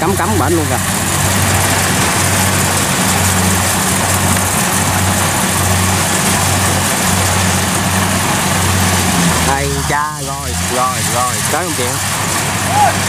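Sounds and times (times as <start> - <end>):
even hiss: 0.0 - 12.9
farm machinery engine droning: 0.0 - 13.0.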